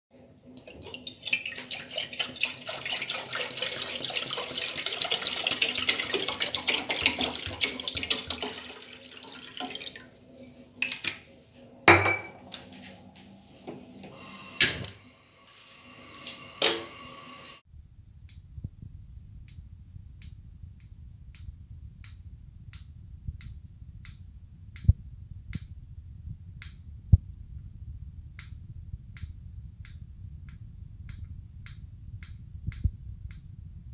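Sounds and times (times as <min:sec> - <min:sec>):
water pouring into a metal saucepan: 0:00.5 - 0:11.0
pan knocking on a stove: 0:11.9 - 0:12.4
low hum: 0:17.6 - 0:33.9.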